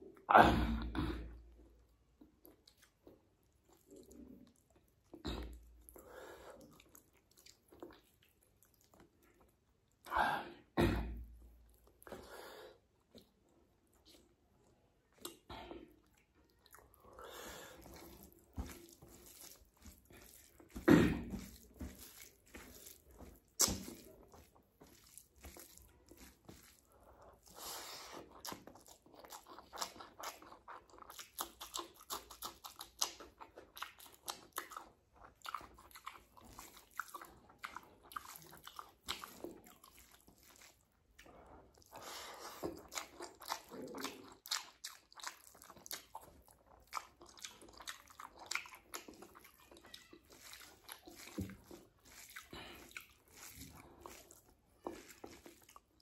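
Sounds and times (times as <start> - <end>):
person chewing and biting: 15.0 - 56.0.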